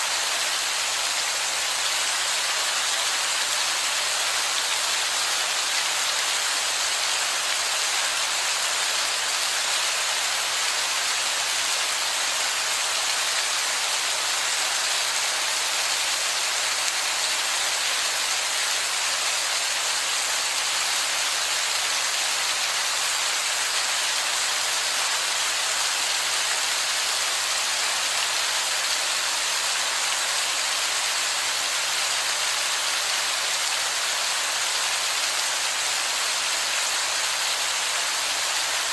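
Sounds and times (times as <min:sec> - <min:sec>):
heavy rain on rock: 0:00.0 - 0:38.9.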